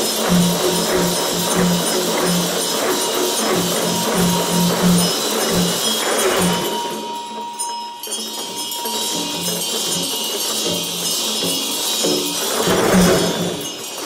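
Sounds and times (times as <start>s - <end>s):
hand bell ringing: 0.0s - 14.0s
hand drums rattling: 0.0s - 14.0s.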